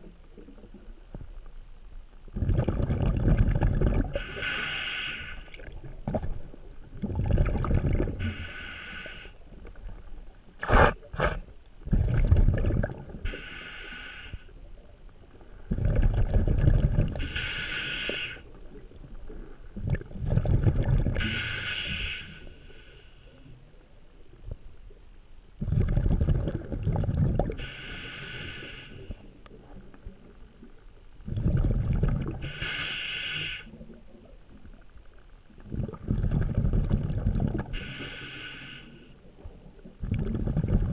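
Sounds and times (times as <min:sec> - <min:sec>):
exhaled bubbles underwater: 0:02.3 - 0:04.9, 0:05.5 - 0:13.5, 0:15.6 - 0:22.2, 0:25.6 - 0:34.9, 0:35.5 - 0:38.2, 0:39.2 - 0:40.9.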